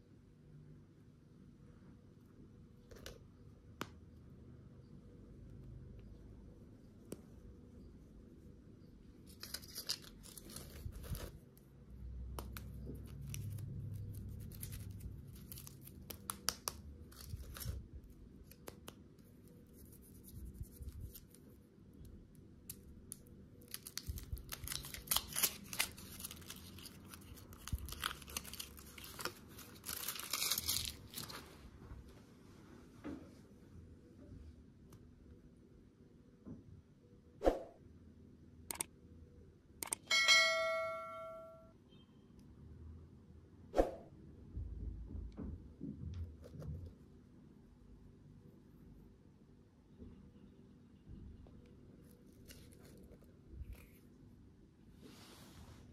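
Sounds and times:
foil wrappers crinkling and tearing: 9.3s - 11.4s, 23.2s - 31.5s.

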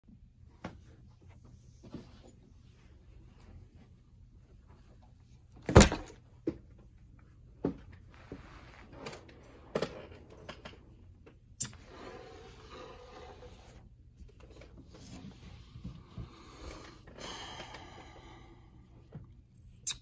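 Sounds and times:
fabric rustling: 7.3s - 9.5s.

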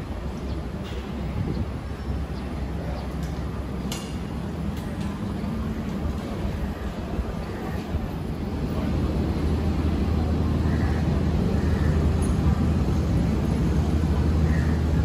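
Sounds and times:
engine hum: 0.0s - 15.0s
street rumble: 0.0s - 15.0s.

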